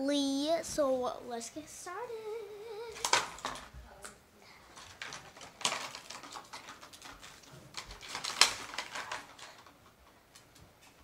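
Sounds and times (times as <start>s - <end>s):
packaging rustling and clicking: 2.9s - 3.7s, 4.7s - 11.0s.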